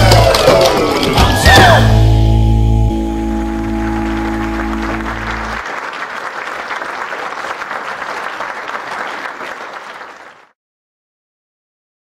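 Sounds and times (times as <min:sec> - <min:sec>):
audience applauding: 0:00.0 - 0:01.3, 0:03.2 - 0:10.5
held chord of backing music: 0:01.2 - 0:05.6.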